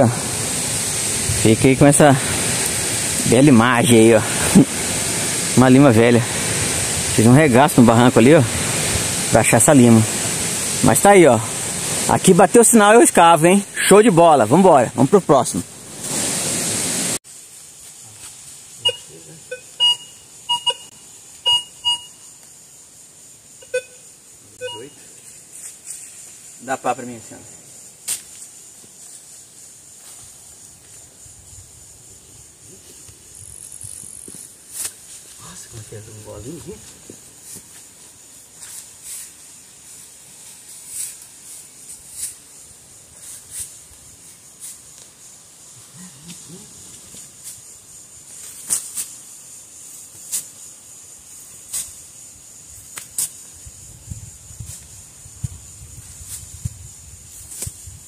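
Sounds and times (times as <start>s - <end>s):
loud hiss: 0.0s - 58.0s
metal detector short beeps: 18.8s - 22.2s, 23.6s - 24.0s, 24.6s - 25.0s.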